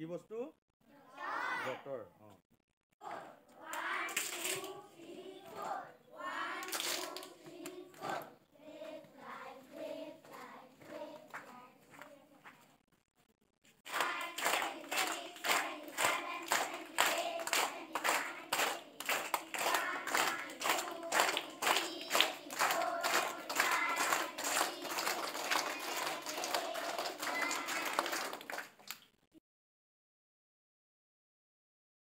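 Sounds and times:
children singing together: 3.0s - 11.5s, 13.9s - 28.5s
clapping in time: 13.9s - 29.0s.

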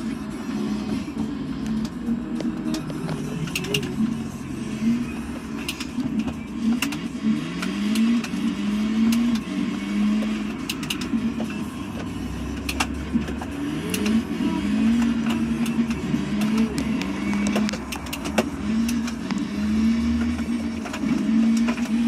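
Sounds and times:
car engine pulling away: 0.0s - 22.0s.

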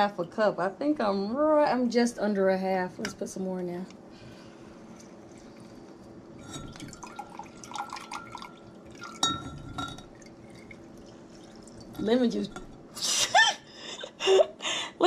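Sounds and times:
juice trickling and dripping: 4.9s - 12.5s.

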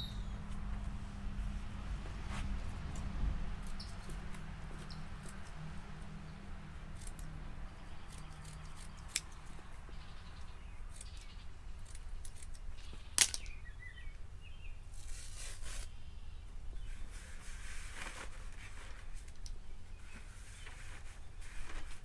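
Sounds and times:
scissors snipping pad: 8.1s - 9.5s
pad rustling: 16.9s - 19.3s, 20.0s - 22.0s.

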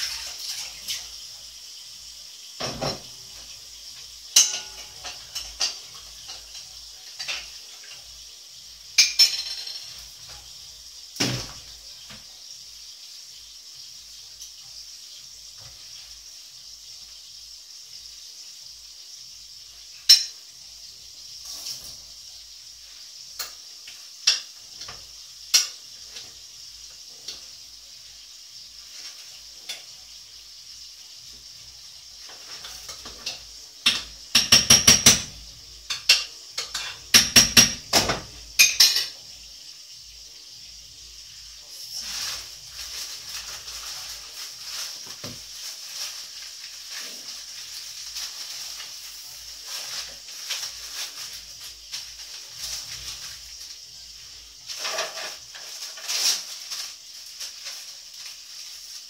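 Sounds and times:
faint steady hiss: 0.0s - 59.0s
metal utensil clinking on dishes: 4.3s - 8.2s, 8.9s - 10.4s, 20.0s - 20.4s, 32.4s - 39.2s.

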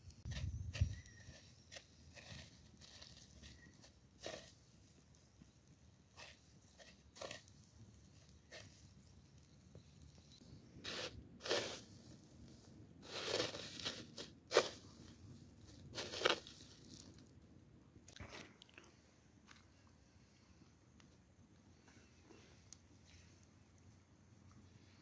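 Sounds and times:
breadcrumbs crunching under fingers: 15.7s - 17.3s.

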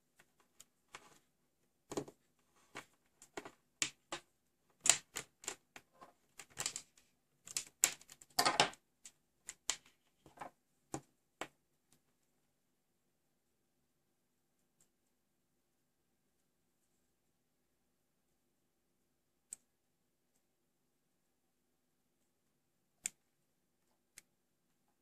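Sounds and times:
wires rustling: 0.0s - 10.6s.

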